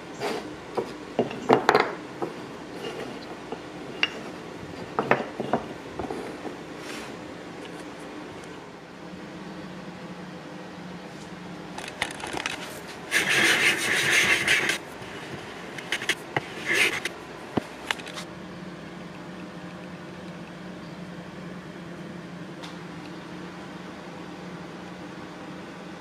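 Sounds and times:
steady background hum: 0.0s - 26.0s
hand plane shaving wood: 13.1s - 14.8s.

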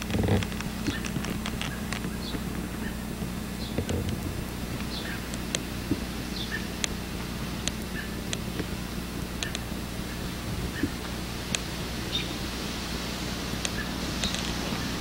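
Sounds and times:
steady low hum: 0.0s - 15.0s
bird chirps: 0.8s - 3.9s, 4.9s - 5.3s, 6.3s - 6.8s, 7.9s - 8.2s, 10.7s - 11.0s, 12.1s - 12.4s.

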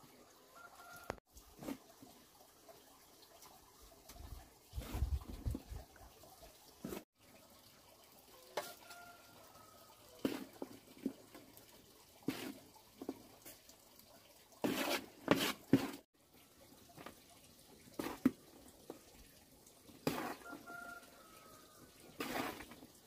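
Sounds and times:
water splashing: 8.4s - 23.0s.

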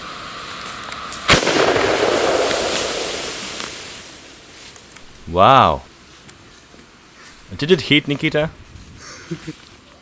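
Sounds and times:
hiss of igniting rocket fuel: 0.0s - 4.9s
loud rushing hiss of burning fuel: 0.0s - 5.8s
can bursting with a sharp bang: 1.2s - 4.9s.

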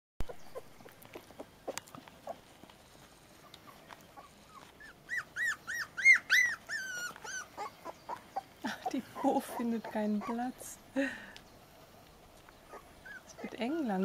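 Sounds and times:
puppies whimpering: 3.6s - 10.8s, 12.6s - 14.0s.

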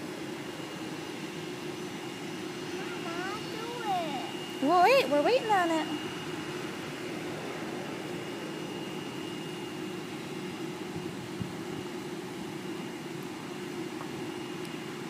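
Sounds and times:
distant jet engines idling: 0.0s - 15.0s.

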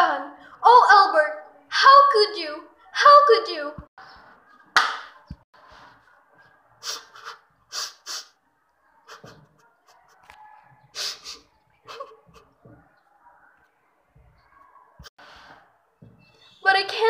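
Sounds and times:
person breathing and sniffing: 6.8s - 8.4s, 10.9s - 11.4s.

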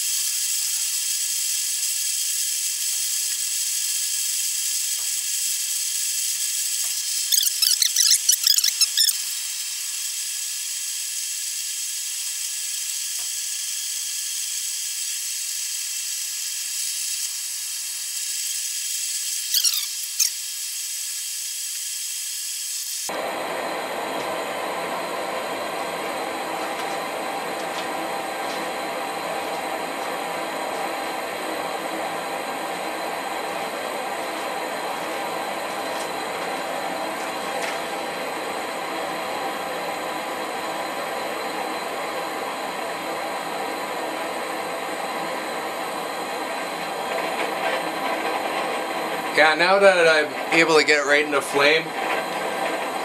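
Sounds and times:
propane torch hissing: 0.0s - 8.2s, 8.9s - 53.0s
squeaky chirps: 7.0s - 9.3s, 19.5s - 20.4s.

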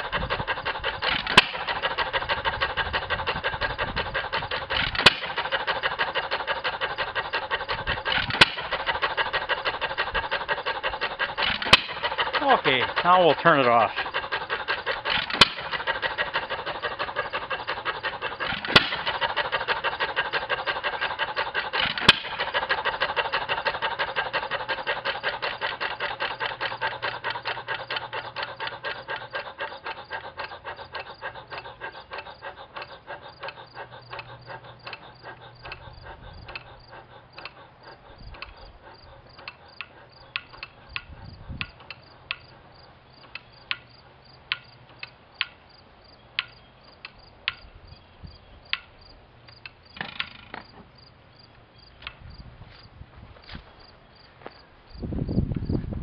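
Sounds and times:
sharp loud clacks: 0.0s - 29.9s
engine clicking as it slows: 0.0s - 52.8s.

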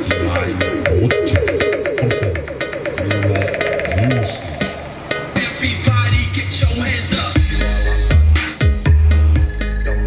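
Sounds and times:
quick repeating synth notes: 0.0s - 5.4s
deep bass line: 0.0s - 10.0s
electronic music over speakers: 0.0s - 10.0s.

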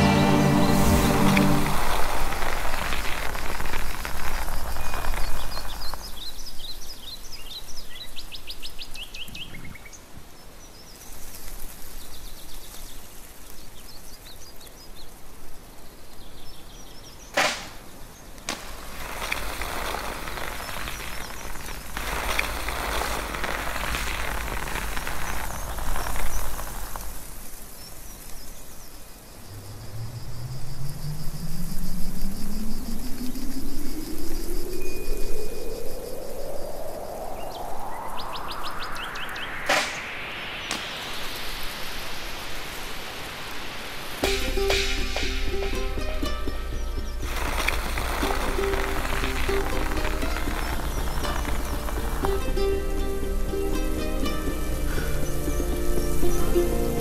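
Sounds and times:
sharp crack: 0.0s - 6.6s, 17.3s - 27.5s, 39.2s - 54.4s
steady rushing noise: 0.0s - 6.7s, 18.5s - 27.6s, 29.3s - 57.0s
birds chirping: 0.0s - 29.5s, 46.7s - 53.1s.

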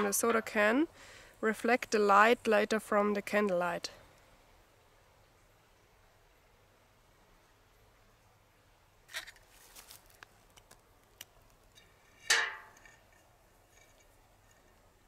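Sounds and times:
soda can clicks and crinkles: 9.1s - 13.2s.

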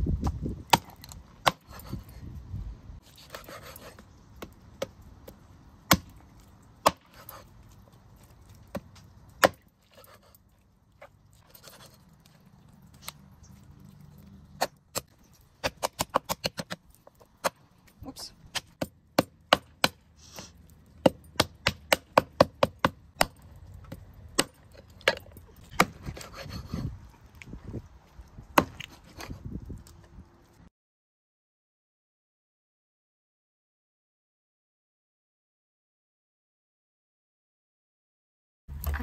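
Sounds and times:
cleaver chopping on wooden board: 0.7s - 1.8s, 5.9s - 6.2s, 6.8s - 7.4s, 8.7s - 9.6s, 18.5s - 20.0s, 21.0s - 23.4s, 24.4s - 26.5s, 28.6s - 29.0s.

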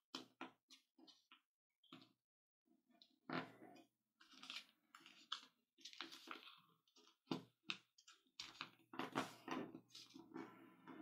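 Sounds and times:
paper rustling and crinkling: 4.2s - 7.3s.

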